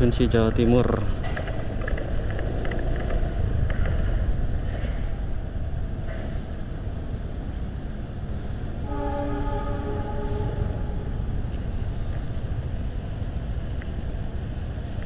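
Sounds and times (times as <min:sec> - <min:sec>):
motorcycle engine and road noise: 0:01.2 - 0:08.1.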